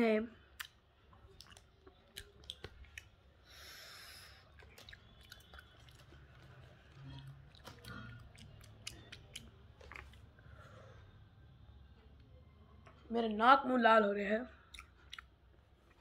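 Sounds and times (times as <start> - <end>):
gum chewing with mouth clicks: 0.5 - 3.3, 4.4 - 10.3, 14.6 - 16.0.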